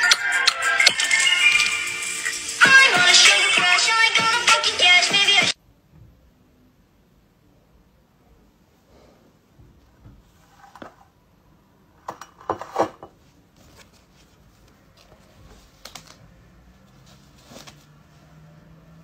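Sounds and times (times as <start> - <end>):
paper mask handled: 13.4 - 18.2.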